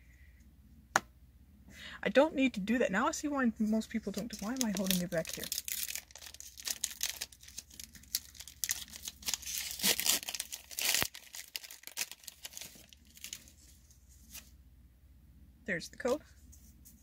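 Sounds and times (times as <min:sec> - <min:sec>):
foil wrapper crinkling and tearing: 0:03.8 - 0:14.4.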